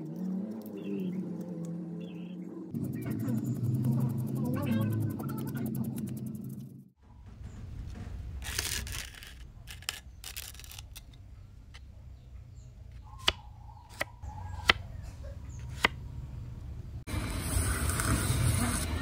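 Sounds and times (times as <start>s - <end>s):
blade scraping rust off steel: 8.3s - 11.9s.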